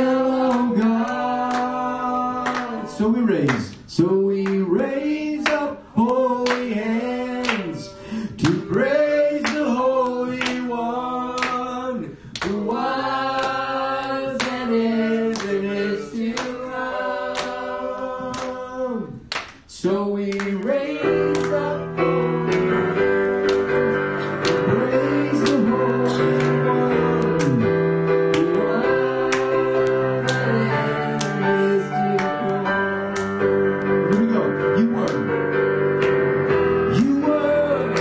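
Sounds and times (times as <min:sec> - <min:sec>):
man singing into microphone: 0:00.0 - 0:16.3, 0:18.2 - 0:24.0, 0:24.6 - 0:35.2, 0:36.9 - 0:38.0
rhythmic instrumental accompaniment: 0:00.0 - 0:38.0
electric keyboard chords: 0:20.4 - 0:38.0.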